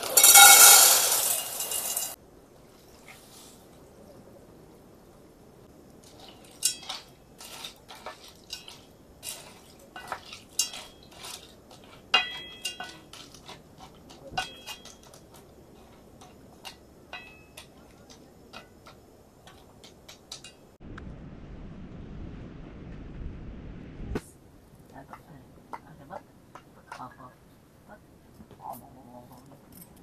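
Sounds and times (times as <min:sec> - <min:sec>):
wooden spoon knocking in metal pot: 0:11.7 - 0:20.6.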